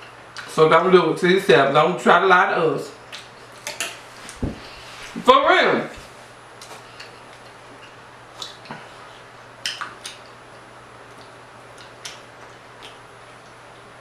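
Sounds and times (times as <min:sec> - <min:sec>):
eating clicks and smacks: 0:06.6 - 0:08.8, 0:09.6 - 0:14.0.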